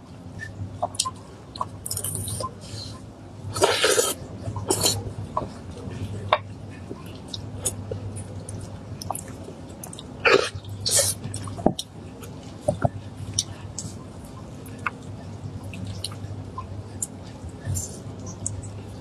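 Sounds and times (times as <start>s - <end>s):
wet mouth clicks and chewing: 6.9s - 11.9s.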